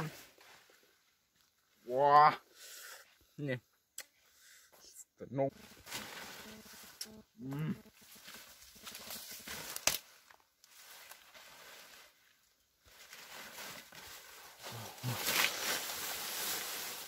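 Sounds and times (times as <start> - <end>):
leaves and grass rustling: 5.5 - 17.0.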